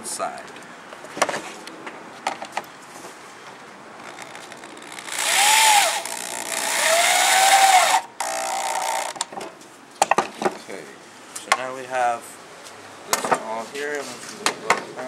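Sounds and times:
power drill driving screw into wood: 4.2 - 9.2.

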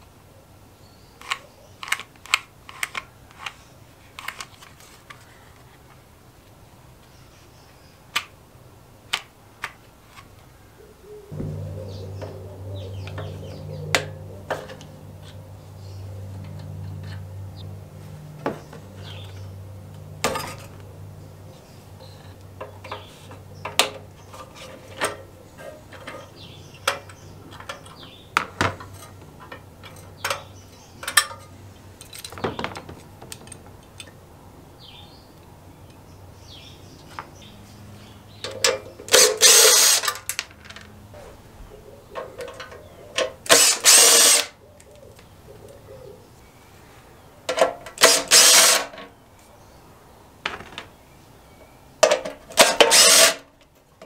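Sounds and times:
cordless drill running: 39.1 - 40.1, 43.5 - 44.5, 48.0 - 48.9, 52.6 - 53.4.

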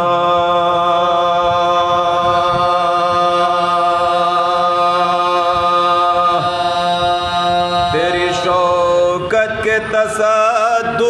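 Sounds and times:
male voices chanting unison drone: 0.0 - 11.0.

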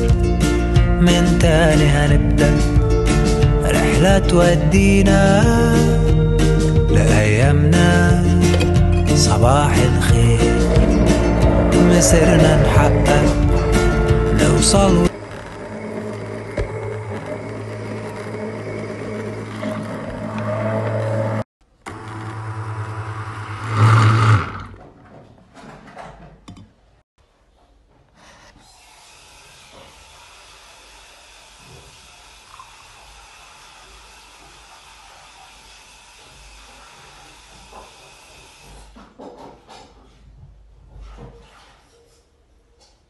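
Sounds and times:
immersion blender motor: 21.9 - 24.8, 28.8 - 38.7.

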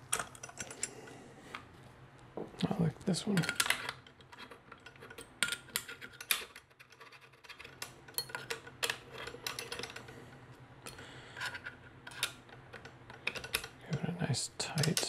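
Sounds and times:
allen key clicking on screws: 10.9 - 13.8
metal parts knocking: 10.9 - 13.8.

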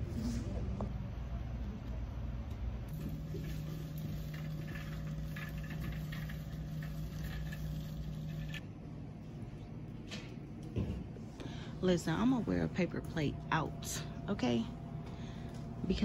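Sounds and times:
steady low hum: 0.0 - 16.0
shopping cart rattling: 2.9 - 8.6.

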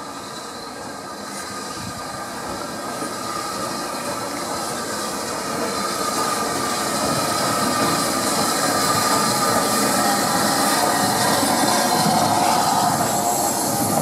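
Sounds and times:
train rumble: 0.0 - 14.0
wheels squealing: 3.3 - 14.0.

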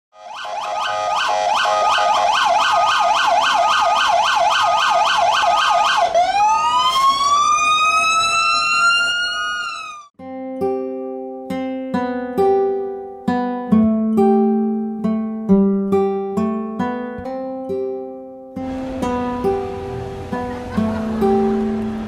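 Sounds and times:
emergency vehicle siren: 0.1 - 10.1
acoustic guitar music: 10.2 - 22.0.

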